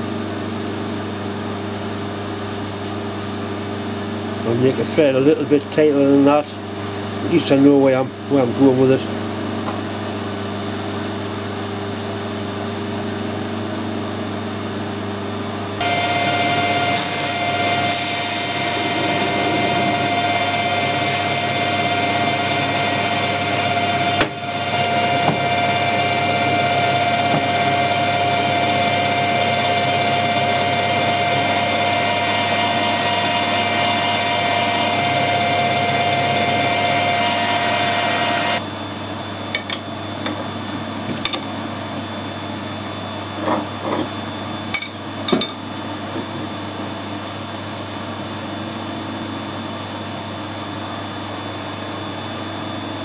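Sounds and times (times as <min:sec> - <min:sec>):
gear whine: 0:15.8 - 0:38.6
lathe motor hum: 0:15.8 - 0:38.7.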